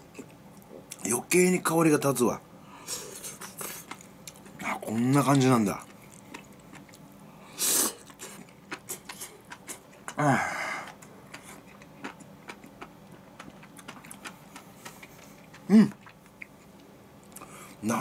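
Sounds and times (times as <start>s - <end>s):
chewing with wet mouth clicks: 3.3s - 7.2s, 8.0s - 10.2s, 10.8s - 17.5s.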